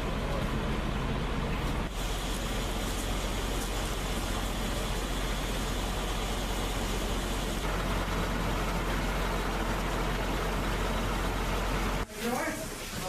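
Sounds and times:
fire engine running: 0:00.0 - 0:13.0.

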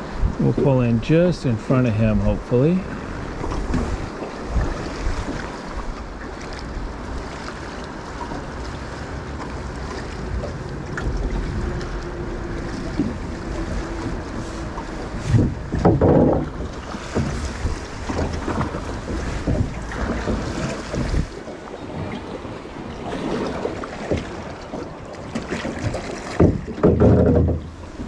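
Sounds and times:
river water rushing past boat: 0:00.0 - 0:28.0
wind buffeting microphone: 0:00.0 - 0:28.0.

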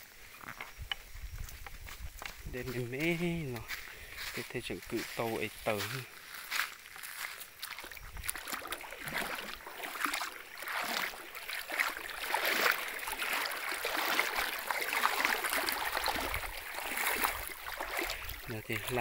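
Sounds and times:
stream babbling over rocks: 0:08.3 - 0:19.0.

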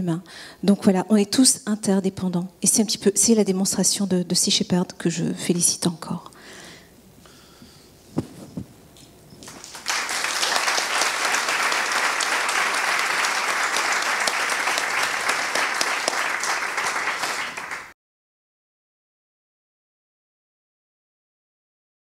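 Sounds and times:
audience applause: 0:09.4 - 0:17.9.

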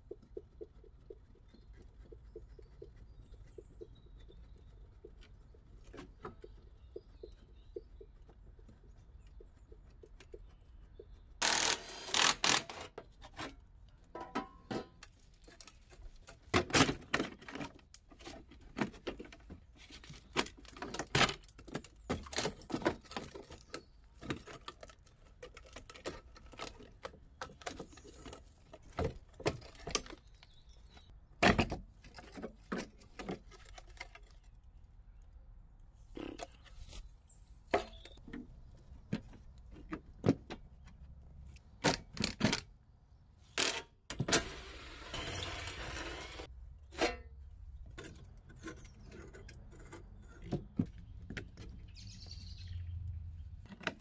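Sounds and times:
cordless drill running: 0:11.4 - 0:12.8, 0:44.4 - 0:46.4
hand tools clinking and scraping: 0:43.5 - 0:47.4.

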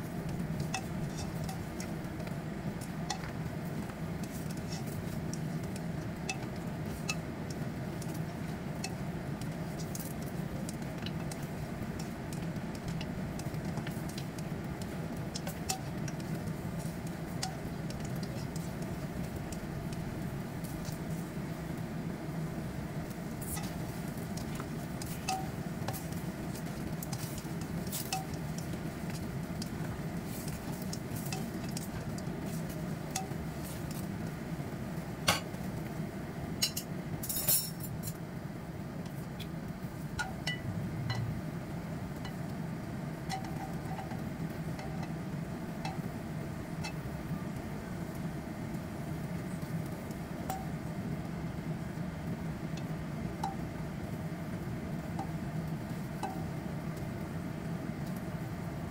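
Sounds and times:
steady low hum: 0:00.0 - 0:58.9
spatula scraping and tapping wok: 0:00.2 - 0:21.1, 0:23.4 - 0:34.1, 0:43.2 - 0:45.2.

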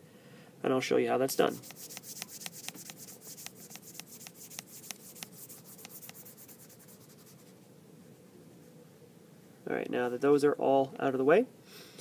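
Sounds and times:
short scratches: 0:01.4 - 0:07.5
rubbing on touchscreen: 0:01.4 - 0:07.6.

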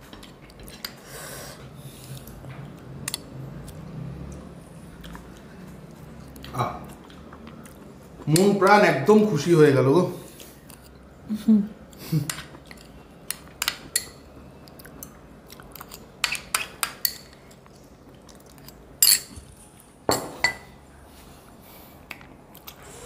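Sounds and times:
metal spoon clinking on glass: 0:19.0 - 0:19.4.

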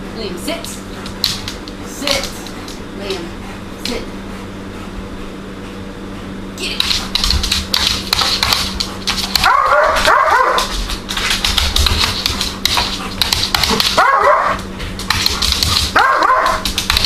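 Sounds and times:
dog claws skidding on laminate floor: 0:06.8 - 0:17.0.

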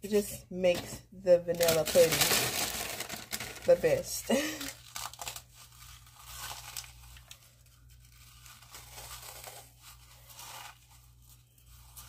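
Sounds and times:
cookies crushed between hands: 0:01.6 - 0:03.7.

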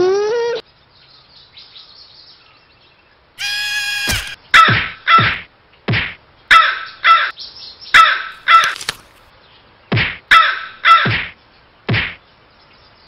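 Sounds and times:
crow cawing: 0:03.4 - 0:05.2.

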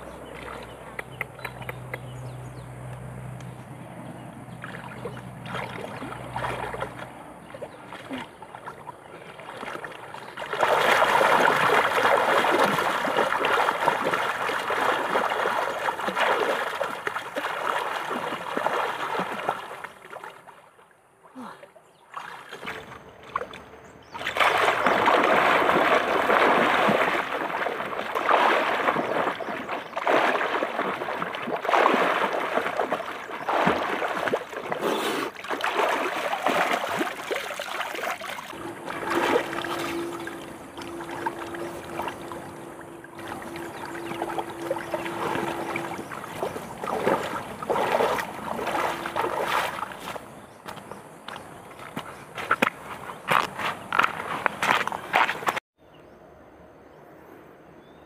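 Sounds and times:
water splashing and sloshing: 0:00.0 - 0:55.6.

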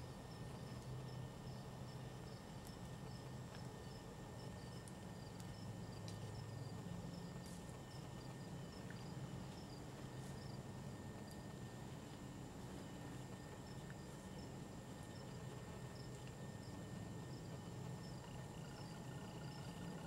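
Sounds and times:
low steady hum: 0:00.0 - 0:20.0
insect chirping: 0:00.2 - 0:11.5, 0:13.4 - 0:20.0
soft ticks: 0:00.7 - 0:01.2, 0:02.6 - 0:03.8, 0:04.7 - 0:06.4.

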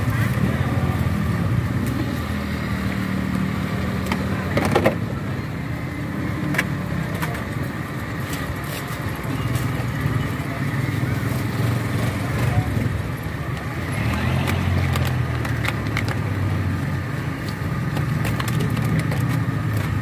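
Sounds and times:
ice and plastic cups clattering: 0:13.9 - 0:16.5, 0:17.5 - 0:20.0.

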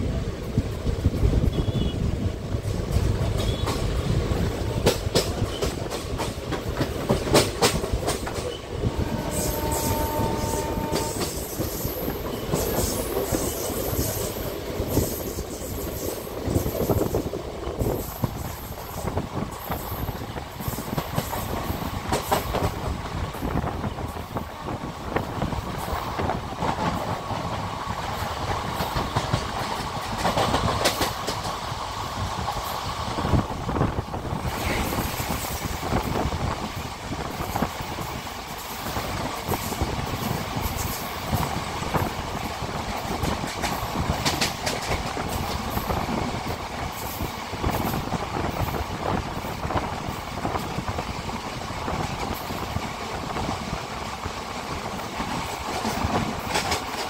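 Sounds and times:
train rumble and wind rush: 0:00.0 - 0:57.0
train horn: 0:01.5 - 0:02.1, 0:08.8 - 0:11.7
wheels clicking over rail joints: 0:02.6 - 0:08.7, 0:34.5 - 0:57.0.

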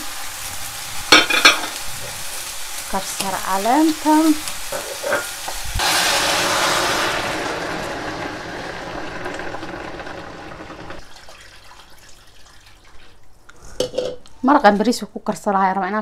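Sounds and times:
water pouring into metal pot: 0:05.8 - 0:13.2.

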